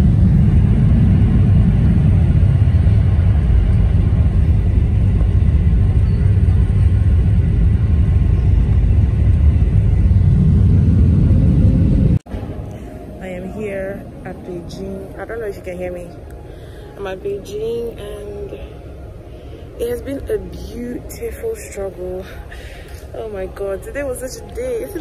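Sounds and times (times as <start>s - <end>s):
rushing air: 0.0s - 14.3s
jet engines rumbling: 0.0s - 25.0s.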